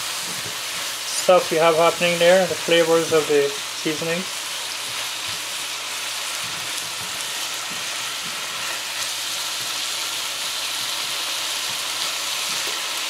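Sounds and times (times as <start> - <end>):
spatula stirring in a wok: 0.0 - 13.0
vegetables sizzling in hot oil: 0.0 - 13.0.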